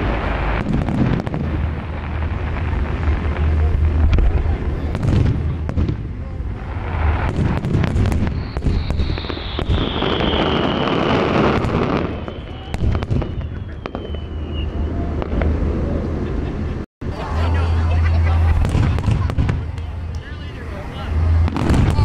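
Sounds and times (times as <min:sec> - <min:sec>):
fireworks bangs and crackles: 0:00.0 - 0:16.7, 0:18.2 - 0:22.0
high falling whistle: 0:08.1 - 0:15.2.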